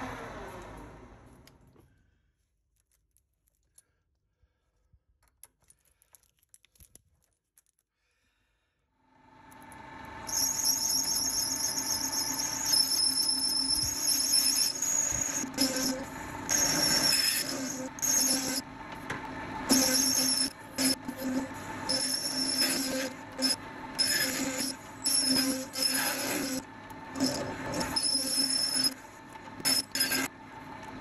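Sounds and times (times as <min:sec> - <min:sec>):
lathe spinning up: 0:09.1 - 0:31.0
high whine of tool cutting metal: 0:09.7 - 0:30.4.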